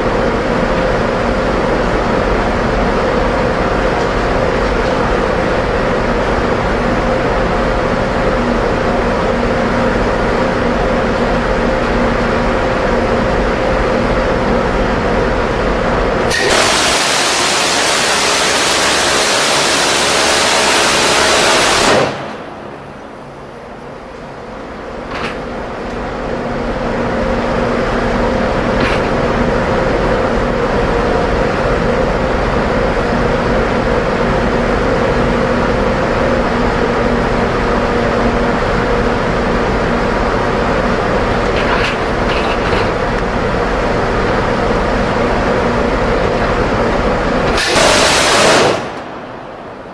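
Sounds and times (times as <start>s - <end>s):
mechanical hum with low whine: 0.0s - 49.9s
gatling cannon firing burst: 16.3s - 22.4s, 47.6s - 49.0s.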